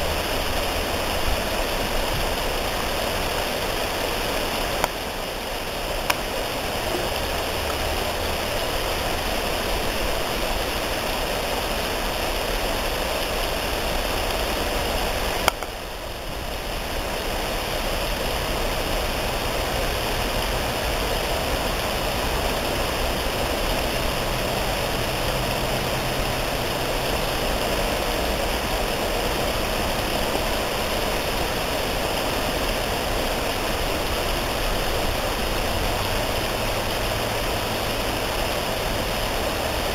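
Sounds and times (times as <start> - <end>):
steady rushing noise: 0.0 - 39.9.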